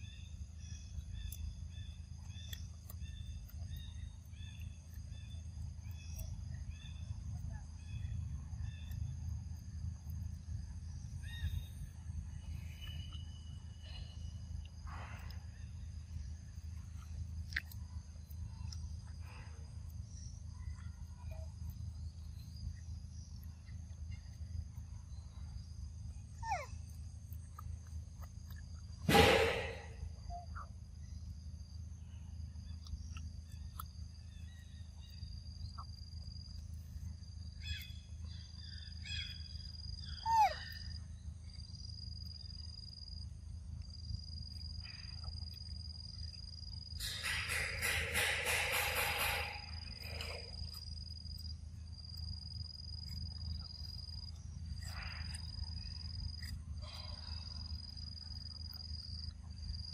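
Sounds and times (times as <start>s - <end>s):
insects droning: 0.0s - 59.9s
animal calls gliding downward: 26.4s - 26.7s
loud brief noise: 29.1s - 30.0s.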